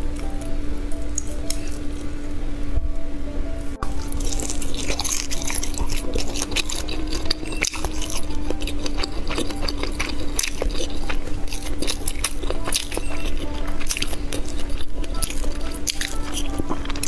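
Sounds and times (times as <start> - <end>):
faint steady hum: 0.0 - 17.0
biting and chewing sausage: 3.8 - 17.0.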